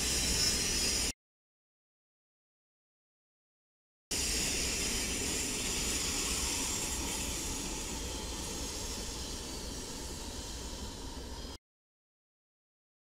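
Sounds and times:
locomotive hiss: 0.0 - 1.1, 4.1 - 11.6.

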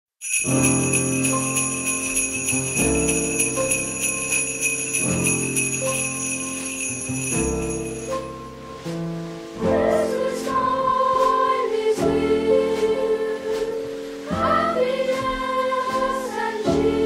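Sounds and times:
sleigh bells shaken: 0.2 - 8.6.

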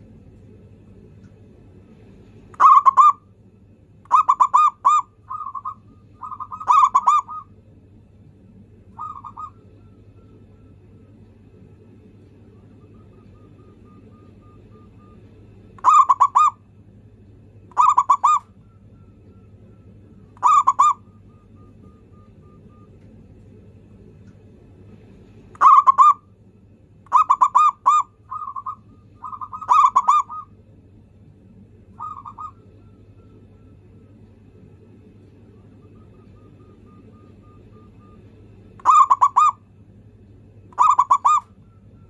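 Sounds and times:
faint low hum: 0.0 - 42.0
dove cooing: 2.6 - 3.3, 4.1 - 7.6, 8.9 - 10.6, 12.4 - 16.6, 17.7 - 18.6, 20.3 - 23.0, 25.6 - 26.3, 27.1 - 30.6, 31.9 - 33.7, 35.5 - 39.6, 40.7 - 41.6.

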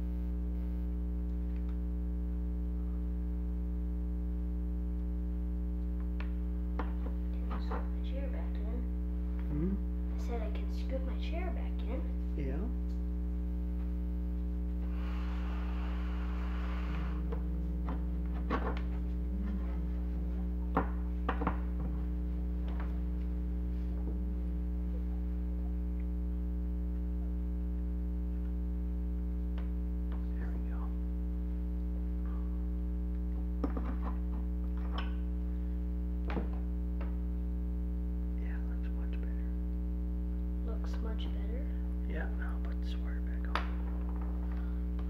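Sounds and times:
low electrical hum: 0.0 - 45.0
short hiss: 14.8 - 17.2.

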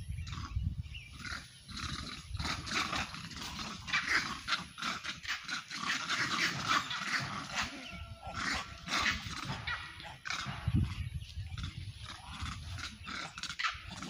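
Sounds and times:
monkeys giving harsh rapid calls: 1.2 - 10.8.

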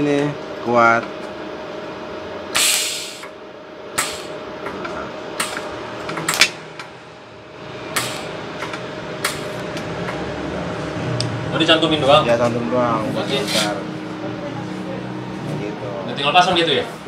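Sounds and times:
welding arc bursts: 2.6 - 3.3, 4.0 - 4.4, 8.0 - 8.4.

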